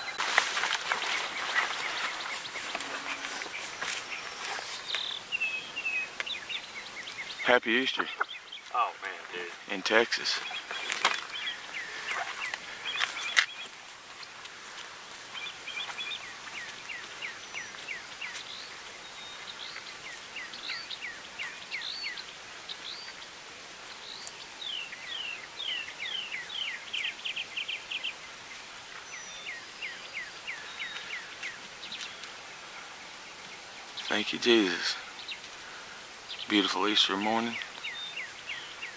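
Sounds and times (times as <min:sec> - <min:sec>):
outdoor hiss: 0:00.0 - 0:38.9
songbird singing whistled notes: 0:01.0 - 0:08.8, 0:10.3 - 0:13.8, 0:15.3 - 0:23.3, 0:23.9 - 0:28.3, 0:29.0 - 0:32.3, 0:36.3 - 0:38.9.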